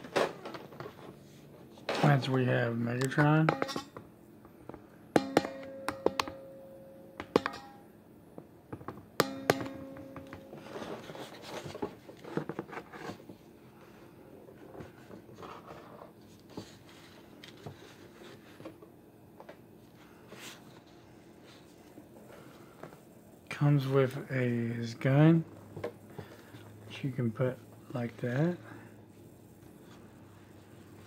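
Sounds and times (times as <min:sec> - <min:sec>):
plastic figure handling and rustling: 0:10.3 - 0:13.5, 0:14.4 - 0:22.0.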